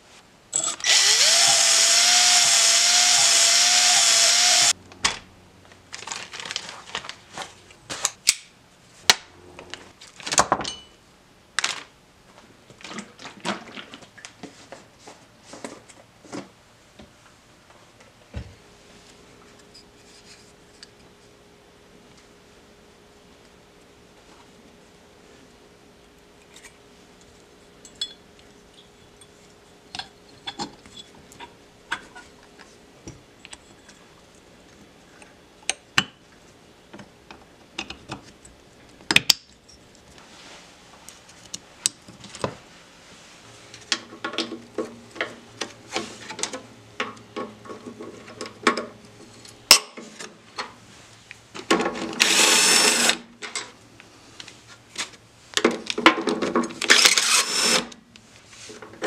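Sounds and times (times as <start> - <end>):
cordless power driver running: 0.6 - 4.7, 52.2 - 53.2, 56.8 - 58.0.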